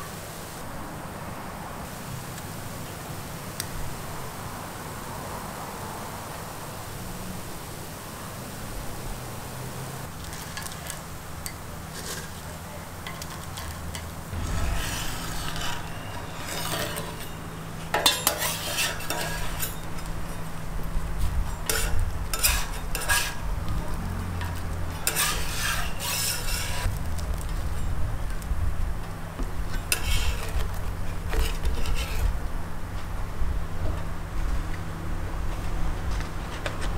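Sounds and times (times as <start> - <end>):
steady low hum: 14.1 - 25.2
metal spatula scraping griddle: 14.3 - 27.0, 29.7 - 32.4.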